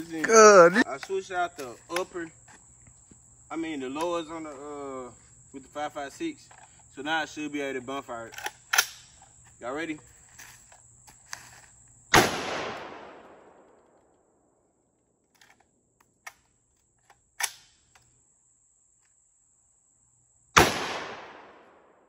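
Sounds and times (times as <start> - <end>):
metallic clicks from gun handling: 6.5 - 6.7, 8.2 - 9.3, 15.3 - 18.1
gunshots with echoing tail: 20.6 - 22.0.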